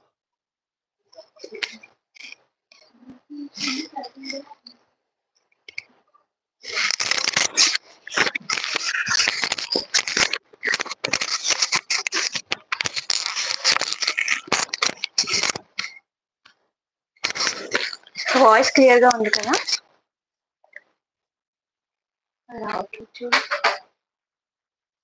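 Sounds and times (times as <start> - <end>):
microphone handling rubbing and clicks: 1.2 - 4.8, 6.6 - 16.0, 17.2 - 19.8.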